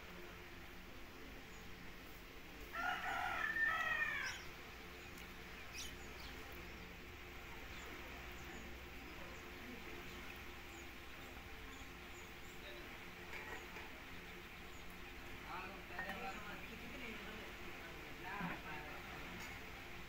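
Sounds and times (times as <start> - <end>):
rooster crowing: 2.7 - 4.5.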